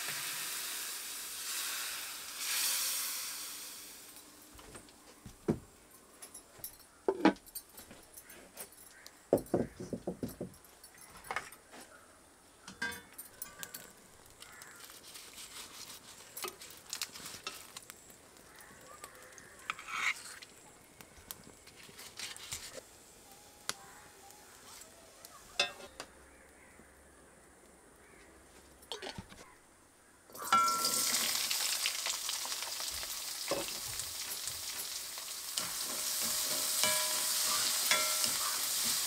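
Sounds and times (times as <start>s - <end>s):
fire crackling: 0.0s - 4.6s, 13.4s - 26.6s, 30.4s - 39.0s
cookware clinking: 12.7s - 13.9s, 25.6s - 26.0s, 30.4s - 31.2s, 33.5s - 39.0s.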